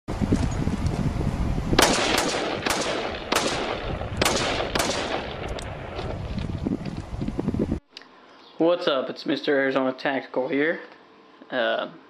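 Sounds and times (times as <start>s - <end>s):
rifle shots: 1.8s - 6.1s.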